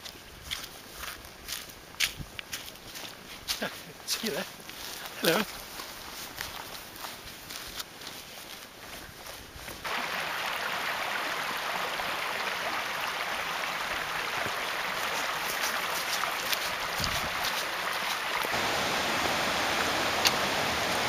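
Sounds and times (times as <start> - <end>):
footsteps on stony track: 0.0 - 9.9, 14.9 - 18.6
stream rushing over rocks: 9.8 - 21.0.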